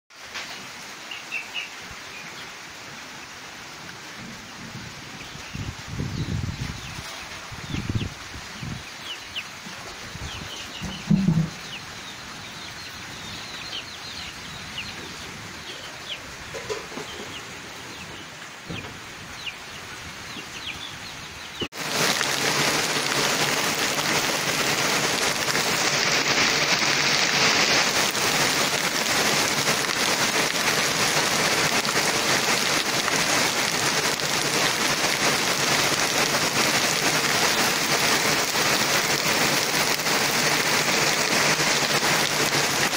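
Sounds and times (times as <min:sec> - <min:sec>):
heavy rain falling: 0:00.1 - 0:42.9
birds chirping: 0:04.4 - 0:22.0
chickens clucking: 0:09.3 - 0:19.6.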